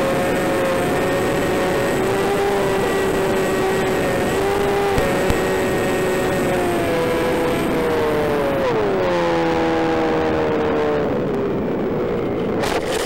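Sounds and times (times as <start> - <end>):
electric motor and propeller whining: 0.0 - 8.6.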